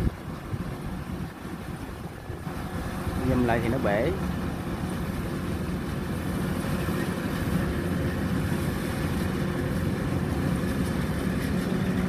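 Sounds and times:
combine harvester engine humming: 0:00.0 - 0:12.0.

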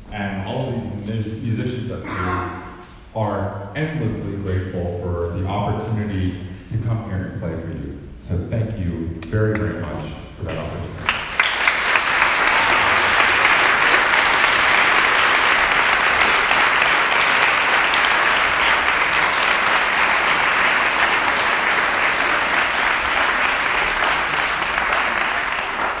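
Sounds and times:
audience applauding: 0:10.5 - 0:26.0.

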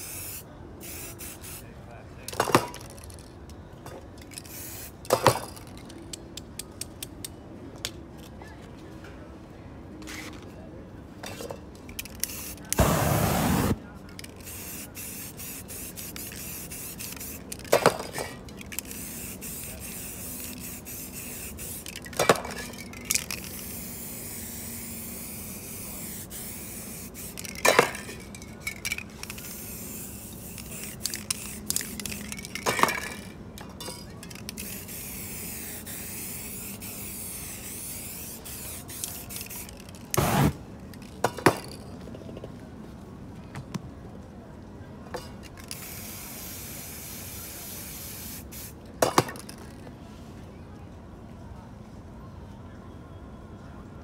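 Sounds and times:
spray paint cans hissing: 0:00.0 - 0:01.6, 0:04.2 - 0:05.8, 0:12.0 - 0:33.3, 0:34.2 - 0:41.8, 0:45.6 - 0:48.8.

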